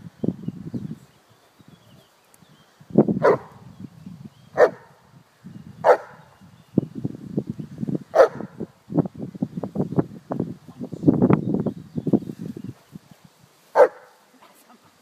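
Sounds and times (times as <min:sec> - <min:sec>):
dog barking: 0:03.2 - 0:03.5, 0:04.6 - 0:04.9, 0:05.8 - 0:06.2, 0:08.2 - 0:08.5, 0:13.8 - 0:14.2.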